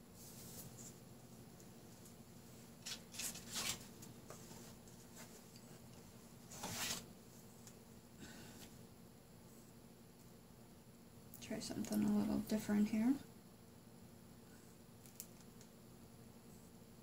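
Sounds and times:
low steady hum: 0:00.0 - 0:17.0
paper packet rustling: 0:02.8 - 0:04.0.

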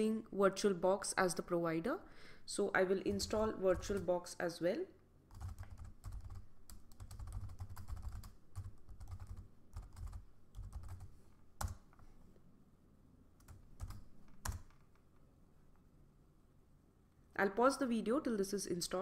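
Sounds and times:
keyboard typing: 0:03.1 - 0:04.1, 0:05.3 - 0:12.0, 0:13.4 - 0:15.0.

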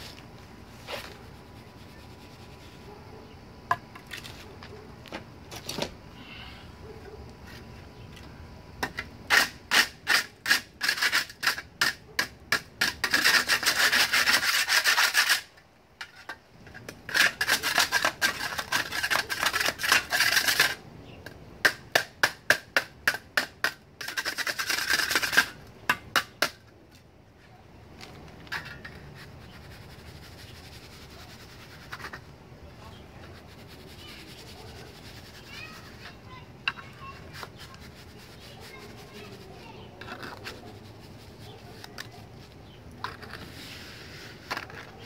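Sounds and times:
trowel scraping wet cement: 0:09.3 - 0:16.4, 0:17.1 - 0:20.8, 0:23.1 - 0:25.6, 0:28.5 - 0:32.3, 0:36.8 - 0:45.0.

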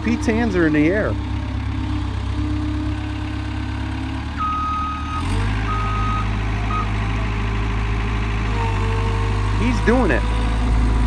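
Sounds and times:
diesel loader engine running: 0:00.0 - 0:11.0
backup alarm beeping: 0:04.4 - 0:06.9.

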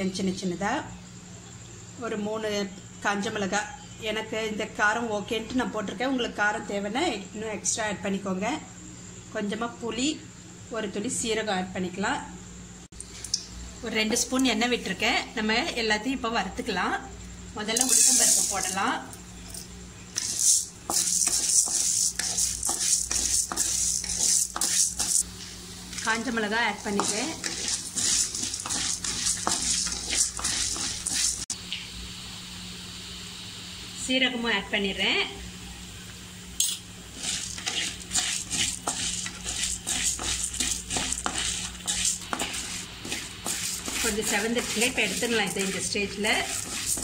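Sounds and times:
lentils sizzling in a pan: 0:17.3 - 0:47.0
wooden spatula scraping a pan: 0:17.8 - 0:18.9, 0:20.2 - 0:25.2, 0:25.9 - 0:31.6, 0:37.1 - 0:47.0.

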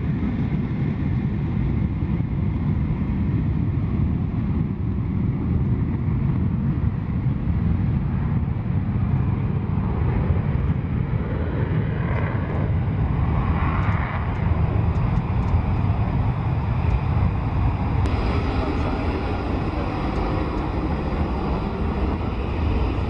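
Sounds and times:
jet engine roar: 0:00.0 - 0:23.0
jet engines running nearby: 0:00.0 - 0:23.0
high engine hiss: 0:18.1 - 0:23.0.

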